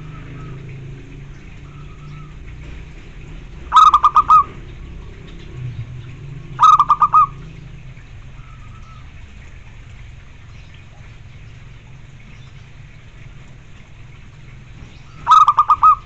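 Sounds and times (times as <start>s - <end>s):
dove cooing: 3.5s - 9.2s, 15.1s - 16.0s.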